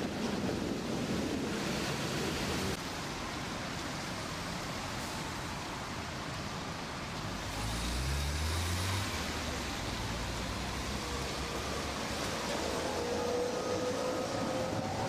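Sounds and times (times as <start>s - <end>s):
tram rumbling: 0.0s - 7.5s, 9.2s - 15.0s
traffic noise: 0.0s - 15.0s.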